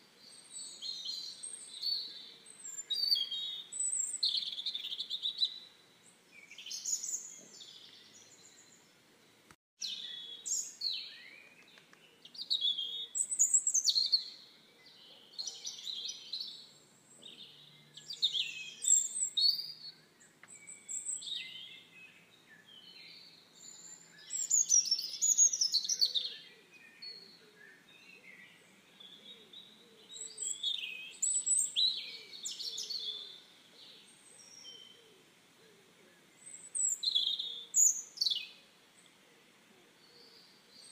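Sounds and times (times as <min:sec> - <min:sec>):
songbirds singing: 0:00.0 - 0:40.9.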